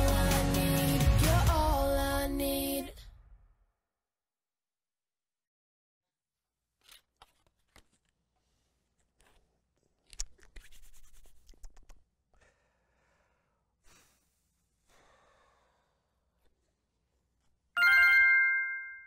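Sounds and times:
scratchy rubbing and crinkling: 6.8 - 12.0.

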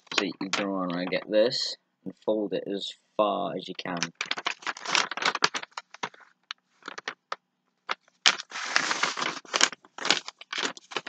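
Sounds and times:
paper crinkling and crackling: 0.0 - 1.3, 3.9 - 7.3, 7.9 - 11.0.

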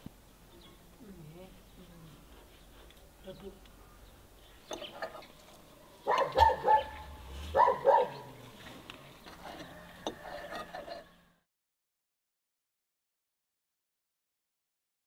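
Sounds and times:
dog barking: 6.0 - 8.3.

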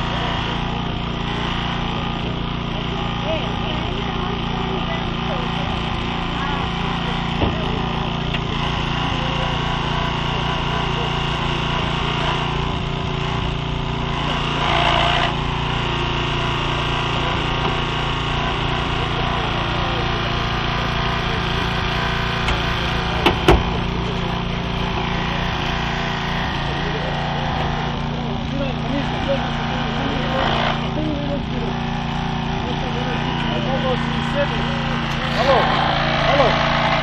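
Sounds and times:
hydraulic cutter on car body: 0.0 - 37.0
small petrol engine running: 0.0 - 37.0.

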